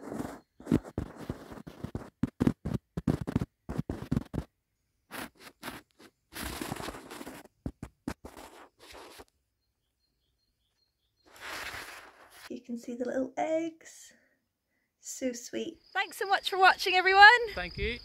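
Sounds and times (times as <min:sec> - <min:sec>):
dry grass rustling and scratching: 0:00.0 - 0:03.4, 0:05.1 - 0:09.2, 0:11.3 - 0:12.5.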